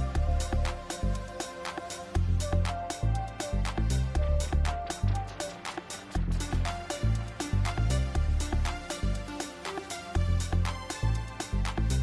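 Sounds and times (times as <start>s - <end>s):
music with heavy bass beat: 0.0s - 12.0s.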